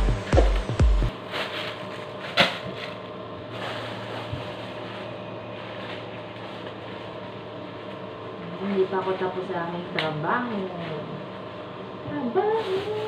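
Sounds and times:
steady low hum: 0.0 - 13.0
leafy greens rustling: 1.1 - 9.5
plastic bag crinkling: 3.5 - 8.0.

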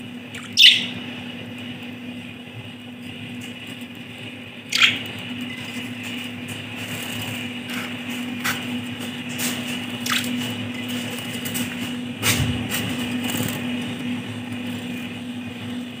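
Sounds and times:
bird splashing in water: 10.0 - 10.3.

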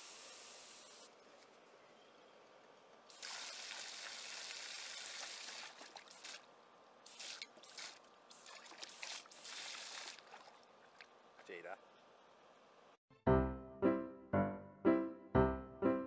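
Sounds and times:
water splashing in a pool: 3.1 - 11.4.

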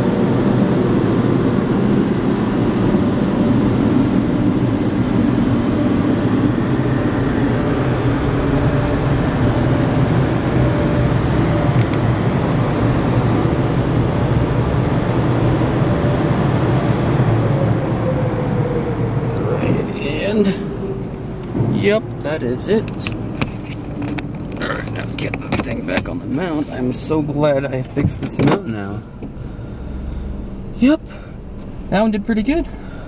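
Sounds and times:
car wash air dryer blowing: 0.0 - 24.2.

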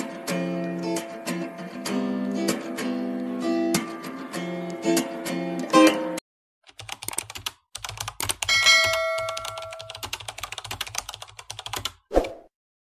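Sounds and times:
rapid keyboard typing: 6.7 - 12.0.

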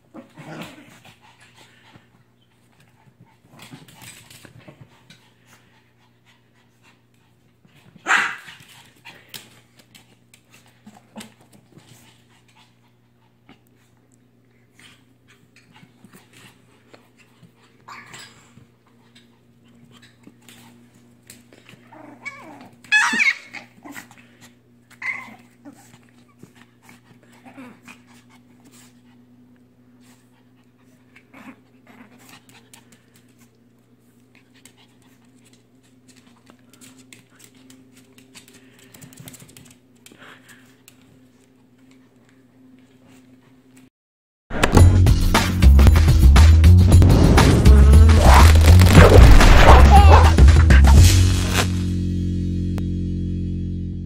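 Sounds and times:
dogs growling and snarling: 0.0 - 1.2, 21.7 - 24.4, 27.2 - 28.4, 31.1 - 32.4, 47.0 - 50.8.

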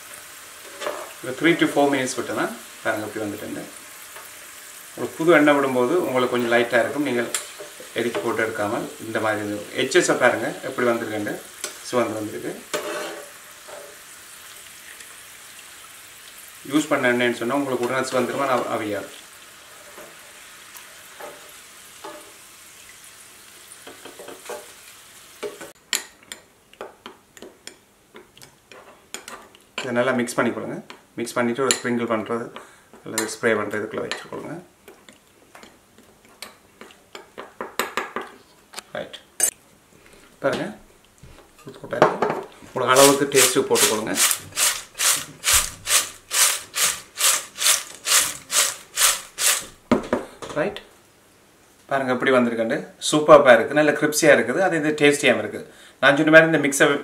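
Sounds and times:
food deep-frying in hot oil: 0.0 - 25.8, 42.9 - 49.8
metal spoon scraping a pan: 12.7 - 14.0, 43.0 - 49.7
chips rattling in glass bowl: 43.0 - 49.7.

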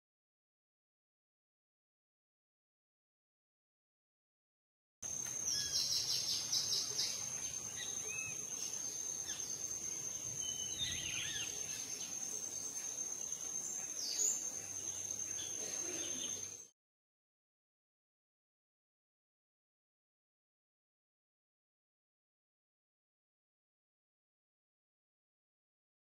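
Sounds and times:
birds chirping and trilling: 5.0 - 16.7
high-pitched insect buzz: 5.1 - 16.7.

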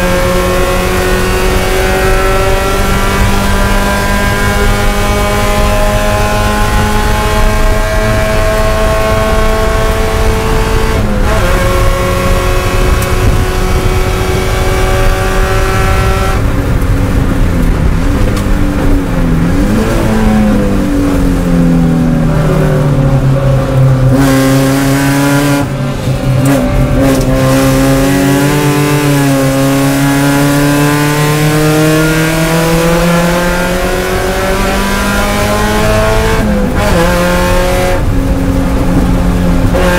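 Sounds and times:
race car engine at high revs: 0.0 - 39.9.

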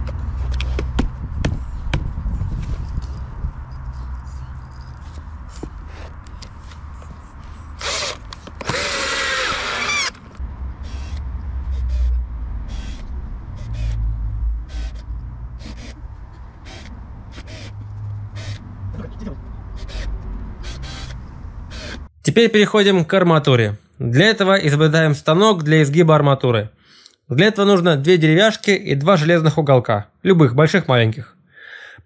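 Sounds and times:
drill driving screws into wood: 7.8 - 11.2, 12.7 - 14.0, 14.7 - 15.0, 19.8 - 22.0.

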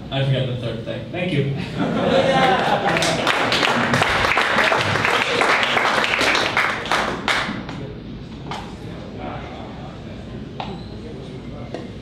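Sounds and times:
audience applauding: 2.4 - 7.7.

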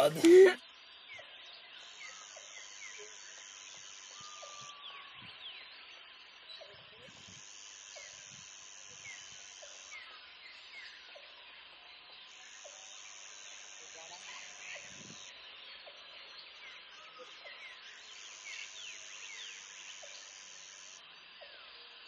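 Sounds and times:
high steady buzz: 0.0 - 0.6, 1.8 - 5.2, 7.0 - 10.2, 12.3 - 15.4, 17.8 - 21.3
insects: 0.0 - 22.0.

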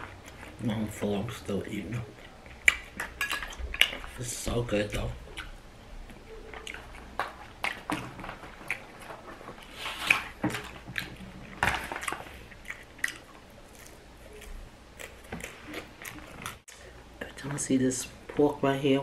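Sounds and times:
chewing crunchy chips: 0.0 - 16.6.

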